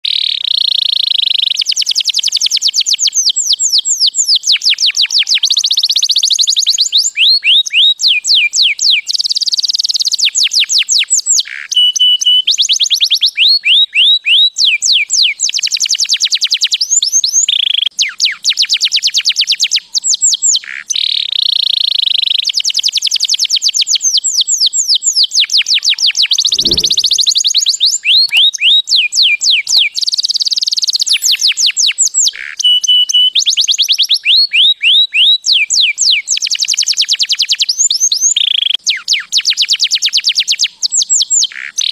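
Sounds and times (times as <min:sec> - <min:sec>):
canary singing trills: 0:03.7 - 0:10.1, 0:24.8 - 0:36.2.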